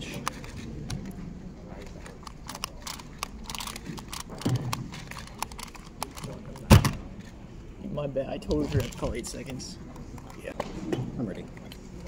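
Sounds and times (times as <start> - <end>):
puzzle clicking: 2.2 - 7.0.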